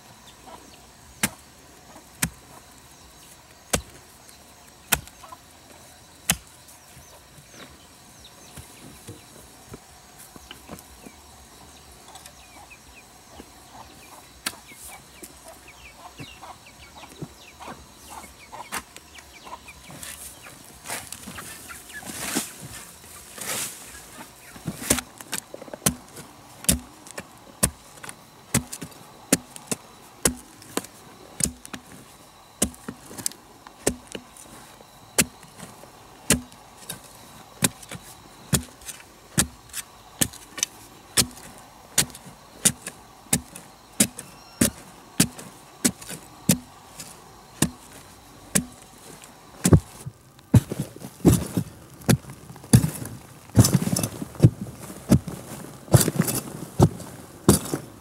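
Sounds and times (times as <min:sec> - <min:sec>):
hand tool striking: 0:25.8 - 0:32.0, 0:32.6 - 0:34.5, 0:35.2 - 0:35.7, 0:36.3 - 0:48.8, 0:49.6 - 0:57.8.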